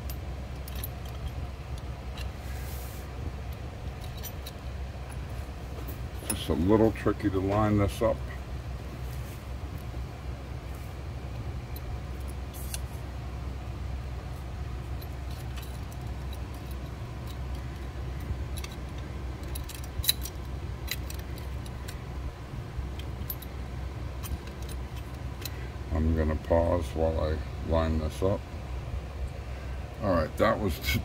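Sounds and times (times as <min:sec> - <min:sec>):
steady low hum: 0:00.0 - 0:31.0.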